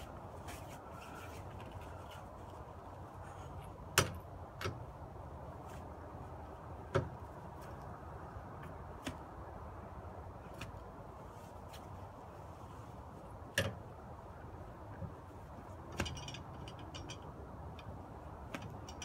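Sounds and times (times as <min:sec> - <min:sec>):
low background noise: 0:00.0 - 0:19.0
lug wrench clinking on nuts: 0:15.9 - 0:17.9.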